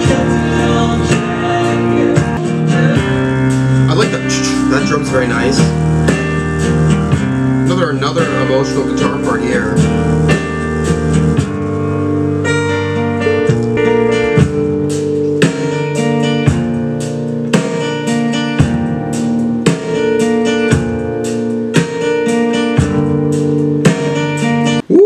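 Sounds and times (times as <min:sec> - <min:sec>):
acoustic guitar folk song: 0:00.0 - 0:12.4.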